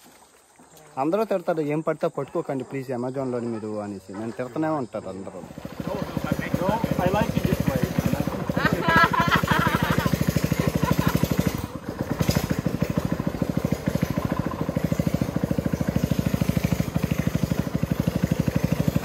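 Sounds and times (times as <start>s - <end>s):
small boat motor puttering: 0.0s - 19.0s
voices: 0.7s - 11.7s.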